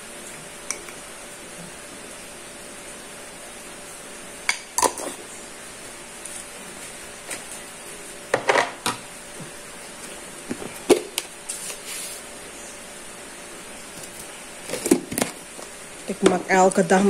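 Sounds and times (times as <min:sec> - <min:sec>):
steady low hum: 0:00.0 - 0:17.0
kitchen items knocking and clattering: 0:08.3 - 0:09.0.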